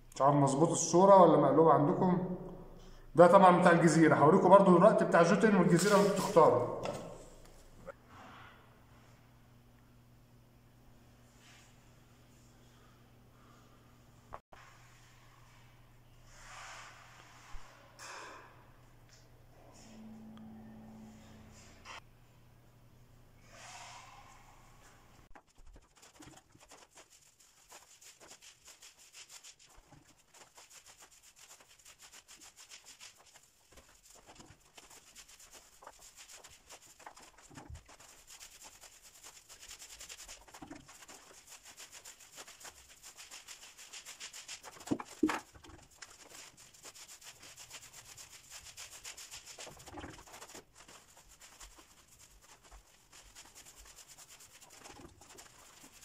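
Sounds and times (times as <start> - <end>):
paint roller rasping on wall: 5.6 - 7.1, 25.3 - 56.0.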